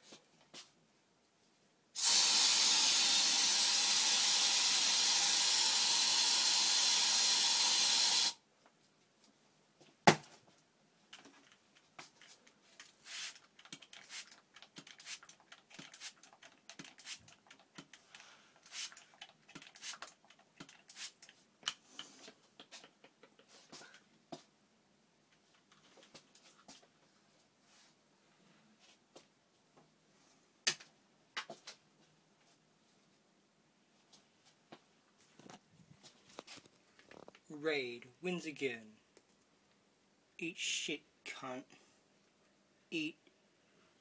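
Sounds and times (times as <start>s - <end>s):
aerosol spray hissing: 2.0s - 8.4s, 13.0s - 13.4s, 18.6s - 19.0s, 19.8s - 20.0s.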